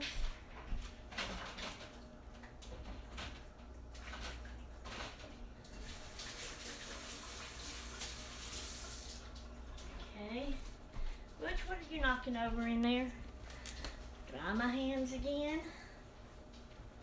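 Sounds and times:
water running from a tap: 0:05.6 - 0:09.6.

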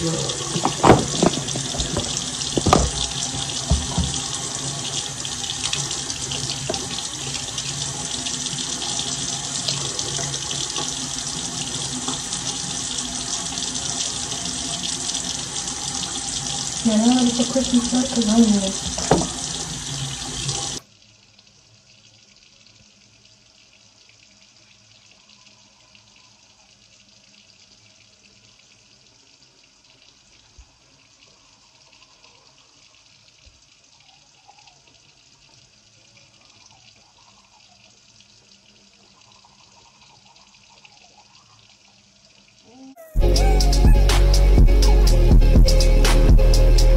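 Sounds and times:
tap running into sink: 0:00.2 - 0:05.0, 0:05.6 - 0:07.2, 0:15.8 - 0:20.8.

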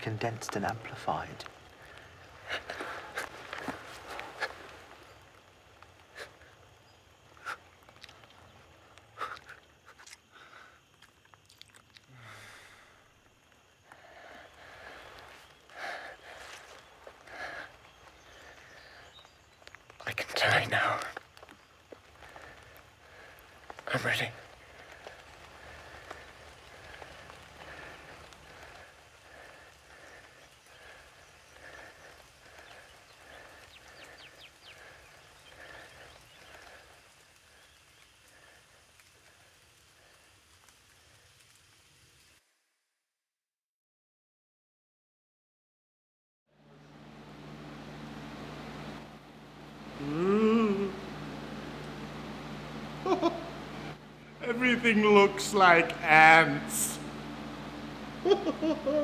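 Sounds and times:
breathy noise: 0:09.1 - 0:13.2, 0:13.8 - 0:40.3, 0:46.7 - 0:55.2
wet sucking and slurping mouth sounds: 0:09.3 - 0:10.3, 0:10.9 - 0:12.1.

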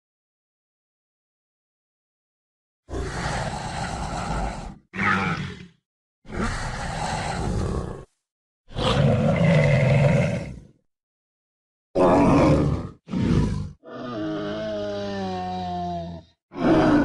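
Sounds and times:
monster growls: 0:02.9 - 0:10.8, 0:12.0 - 0:17.0
monster roar: 0:02.9 - 0:10.8, 0:12.0 - 0:17.0.

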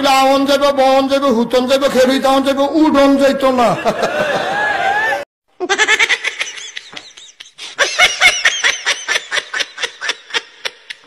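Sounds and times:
person laughing: 0:03.7 - 0:11.0.

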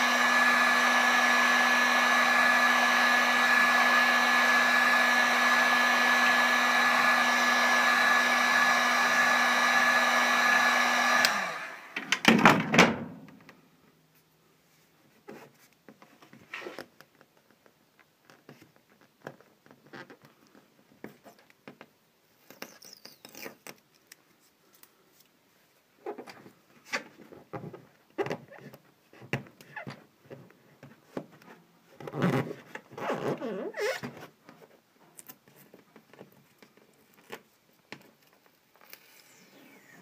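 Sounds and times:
decal peeling with scratchy rips: 0:22.4 - 0:24.9.

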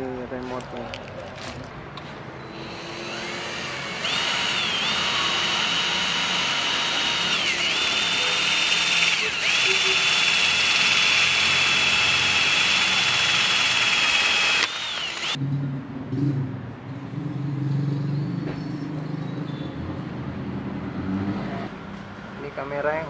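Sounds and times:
cordless drill whining: 0:02.4 - 0:15.4.

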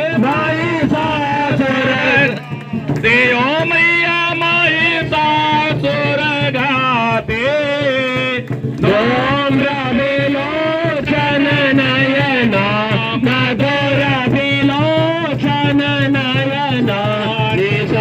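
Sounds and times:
person singing: 0:08.8 - 0:14.8.

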